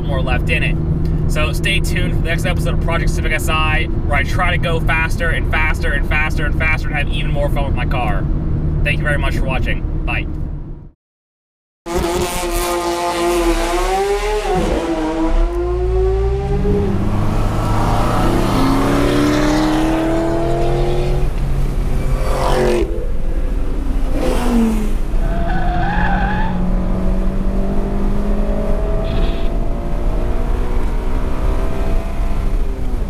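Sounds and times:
car engine revving: 0:11.9 - 0:33.0.

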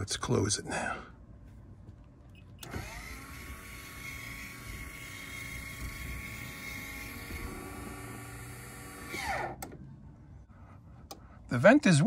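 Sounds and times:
electric motor whining: 0:02.6 - 0:09.7.

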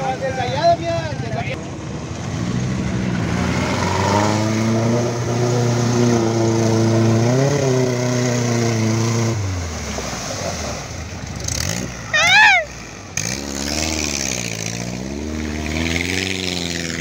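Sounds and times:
car engine pulling through mud: 0:00.0 - 0:17.0
water splashing under tyres: 0:05.4 - 0:17.0.

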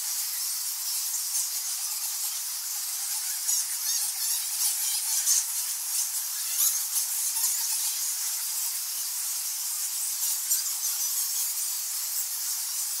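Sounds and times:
bats chattering and squealing: 0:00.0 - 0:13.0.

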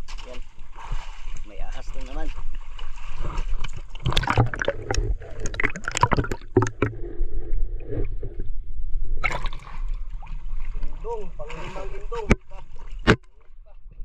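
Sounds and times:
water sloshing around boat hull: 0:00.0 - 0:14.0
splashy knocks: 0:02.0 - 0:07.0.

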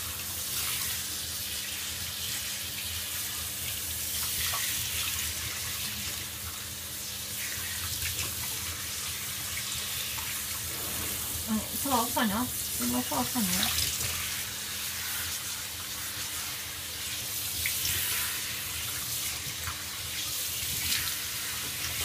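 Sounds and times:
shower head spraying water: 0:07.4 - 0:22.0.

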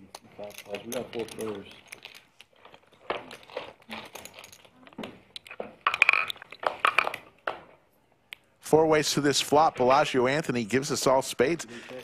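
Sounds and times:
poker chips clicking: 0:00.1 - 0:07.4.

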